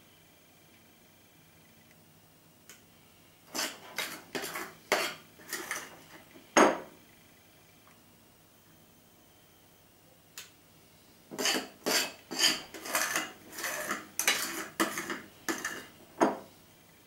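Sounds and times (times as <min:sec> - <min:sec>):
spoon scraping glass bowl: 0:03.5 - 0:06.1, 0:11.3 - 0:15.9.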